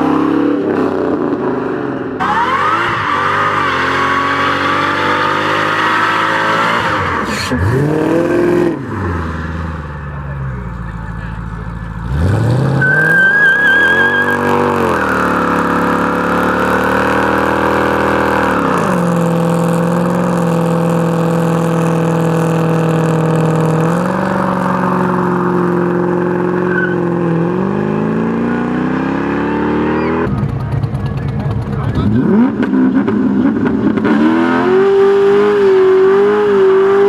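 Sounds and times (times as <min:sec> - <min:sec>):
car engine revving: 0:00.0 - 0:37.0
tyre squeal: 0:06.8 - 0:07.9, 0:12.8 - 0:15.9, 0:26.5 - 0:27.2, 0:29.8 - 0:30.3.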